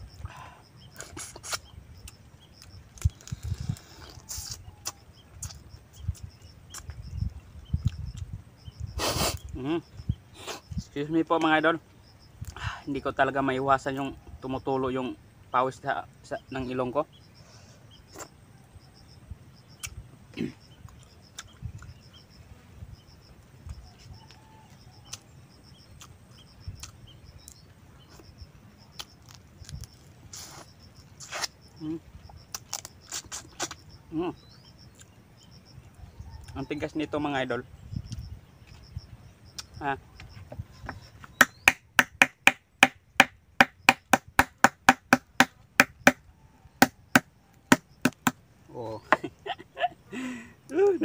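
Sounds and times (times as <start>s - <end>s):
person chewing: 3.0s - 7.0s, 26.8s - 27.0s, 32.5s - 33.8s
shellfish shell being struck: 41.4s - 46.2s.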